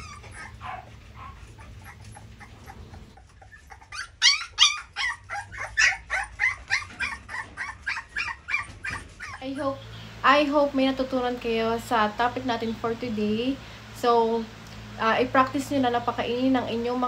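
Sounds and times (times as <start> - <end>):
puppies yipping and whimpering: 0.0 - 9.9.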